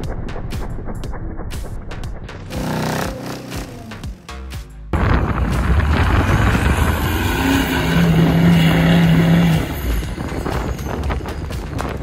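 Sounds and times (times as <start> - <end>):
truck engine revving: 2.4 - 4.5, 5.3 - 11.6.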